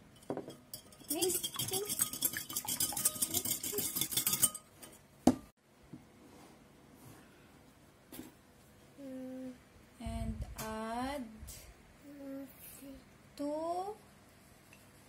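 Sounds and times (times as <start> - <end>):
whisk clinking against glass bowl: 0.1 - 5.0.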